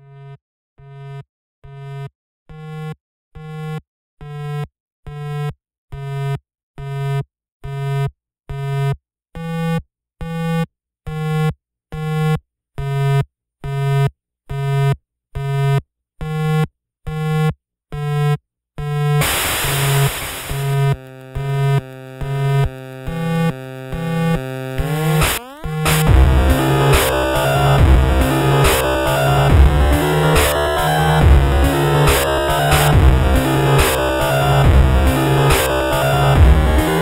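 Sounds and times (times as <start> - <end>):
pulsing low synthesizer tone: 19.0 - 37.0
noise wash and synth: 19.2 - 21.5, 24.8 - 37.0.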